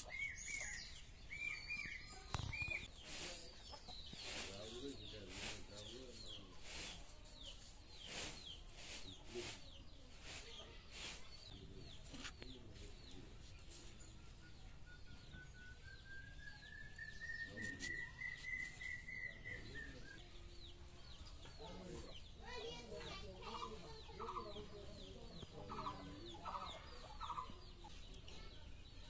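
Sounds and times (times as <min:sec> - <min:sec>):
bird chirping: 0:00.0 - 0:29.0
hens clucking: 0:23.1 - 0:27.9.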